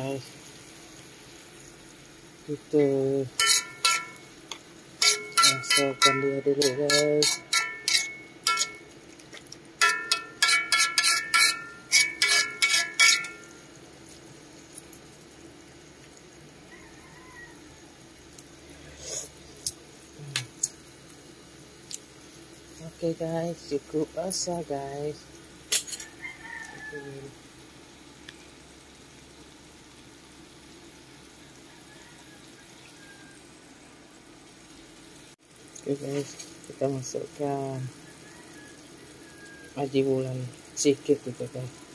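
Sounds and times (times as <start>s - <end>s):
greens simmering and sizzling: 0.0s - 41.9s
metal spatula clanging on wok: 3.4s - 4.4s, 5.0s - 9.0s, 9.8s - 13.5s.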